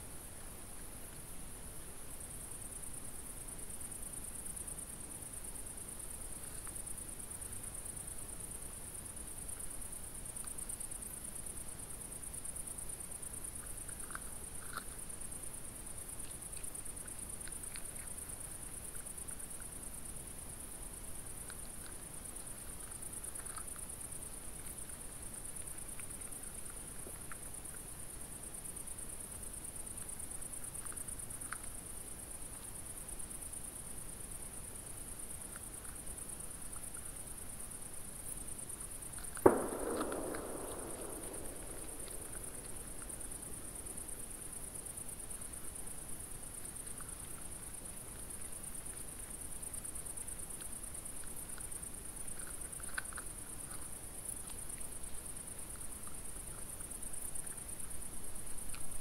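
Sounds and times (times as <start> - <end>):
insects stridulating: 0.0 - 59.0
sharp knock: 39.4 - 44.0.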